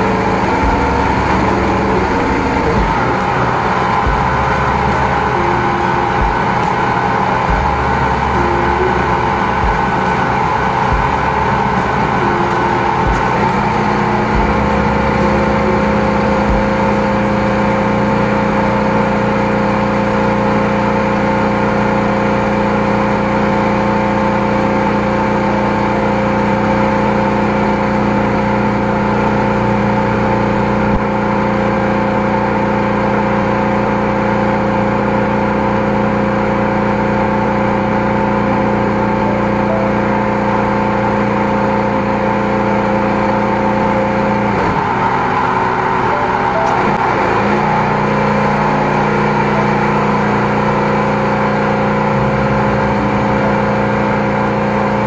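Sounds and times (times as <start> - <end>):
drain jetter engine drone: 0.0 - 55.0.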